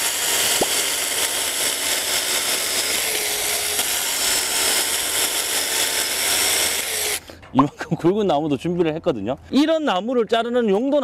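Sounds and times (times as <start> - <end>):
chainsaw cutting through log: 0.0 - 7.3.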